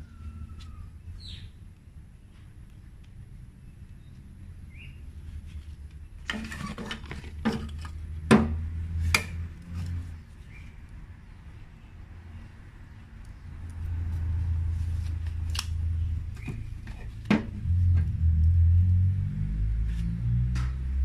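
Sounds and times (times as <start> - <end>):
plastic flower pots clattering: 6.2 - 8.6
faint low rumble: 17.5 - 21.0.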